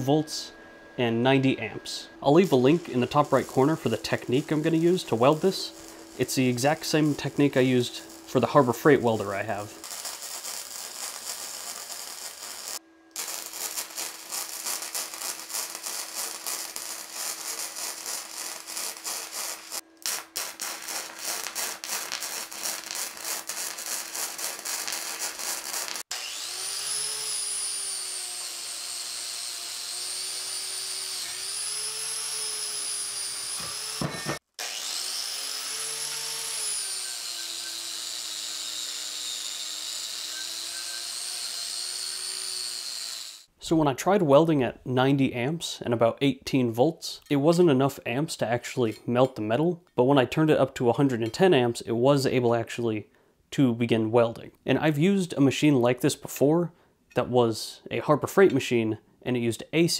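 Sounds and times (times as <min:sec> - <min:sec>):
angle grinder whining: 0:00.0 - 0:43.5
arc welding crackling: 0:02.2 - 0:43.5.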